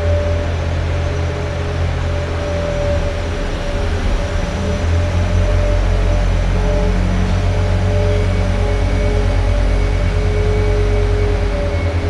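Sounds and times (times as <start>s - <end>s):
ice resurfacer rumbling: 0.0s - 12.0s.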